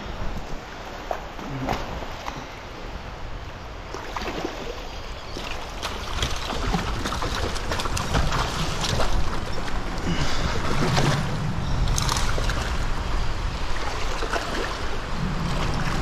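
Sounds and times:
fish thrashing and splashing: 0:05.4 - 0:12.9.

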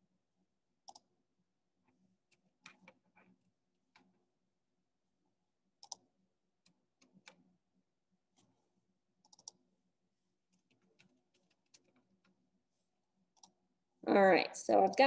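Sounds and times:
computer mouse clicks: 0:00.8 - 0:01.1, 0:05.8 - 0:06.0, 0:09.2 - 0:09.6, 0:13.3 - 0:13.6.

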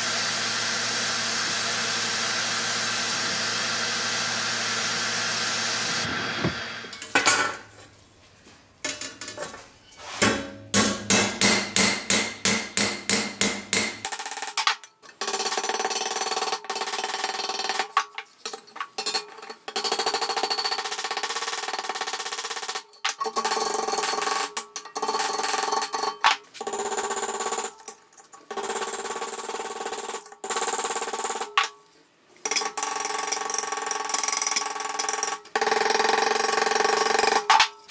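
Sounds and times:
hammer striking metal on anvil: 0:10.2 - 0:14.1.

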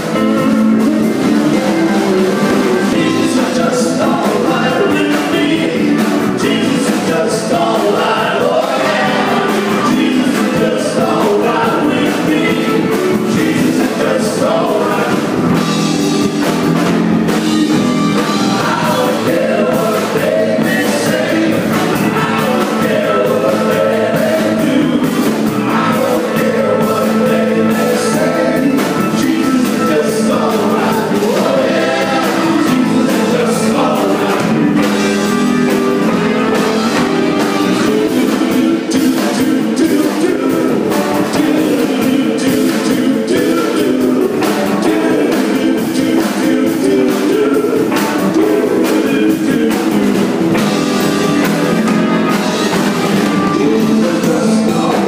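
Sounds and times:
person singing: 0:00.0 - 0:16.5, 0:17.2 - 0:35.5, 0:36.1 - 0:50.8, 0:52.3 - 0:55.0
rock band playing: 0:00.0 - 0:55.0.

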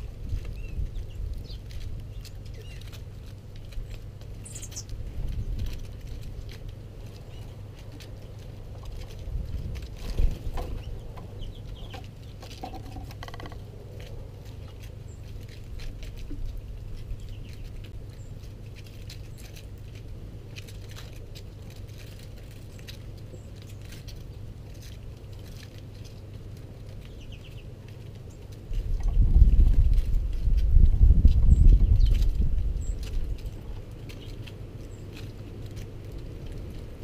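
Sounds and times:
steady low rumble: 0:00.0 - 0:37.0
birds pecking on wooden table: 0:00.3 - 0:29.2
faint bird chirps: 0:04.4 - 0:04.9.

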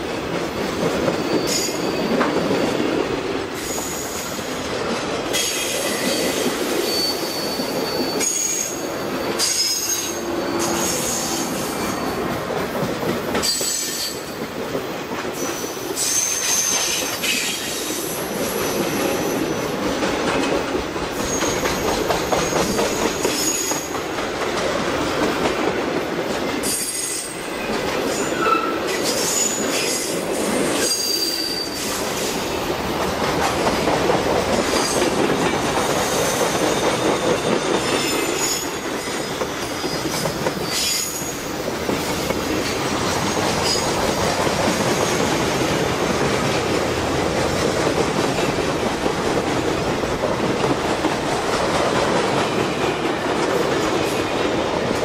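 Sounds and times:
freight train wheels rumbling: 0:00.0 - 0:55.0
wheel squeals: 0:01.2 - 0:02.4, 0:05.4 - 0:12.2, 0:37.0 - 0:41.5.

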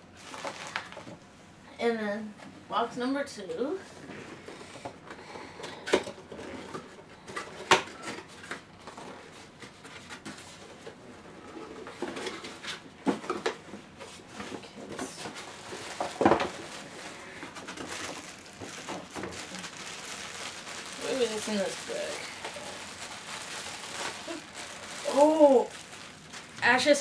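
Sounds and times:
cardboard rustling: 0:00.2 - 0:01.2, 0:06.4 - 0:27.0.

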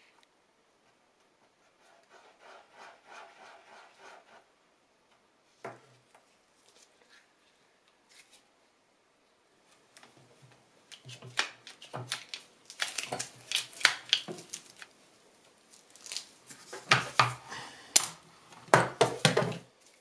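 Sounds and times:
gloved hand rubbing board: 0:01.3 - 0:04.5.

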